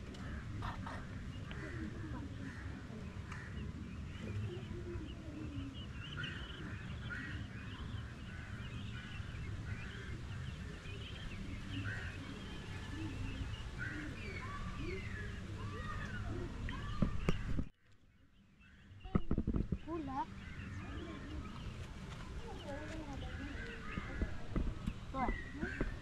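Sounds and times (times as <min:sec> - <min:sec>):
birds chirping: 0:00.0 - 0:26.0.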